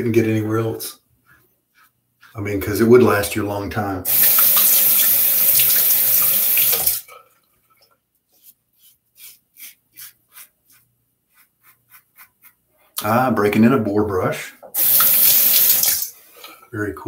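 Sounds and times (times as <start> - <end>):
tap running into sink: 4.1 - 7.0
razor scraping stubble: 8.4 - 12.6.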